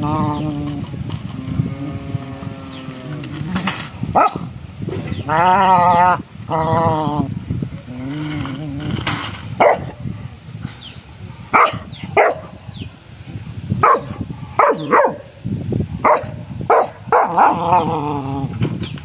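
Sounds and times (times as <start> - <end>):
dog barking sharply: 11.6 - 12.4.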